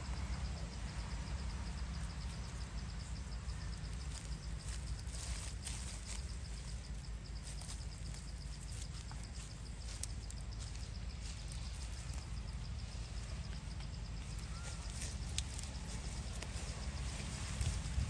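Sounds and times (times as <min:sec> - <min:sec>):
low rumble: 0:00.0 - 0:18.0
faint clicks and crackles: 0:13.5 - 0:18.0.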